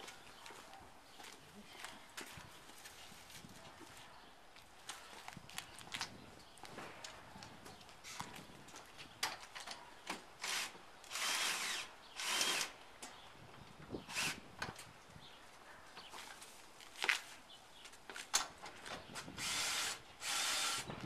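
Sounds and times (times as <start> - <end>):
cordless drill running: 10.4 - 12.7, 19.4 - 20.9.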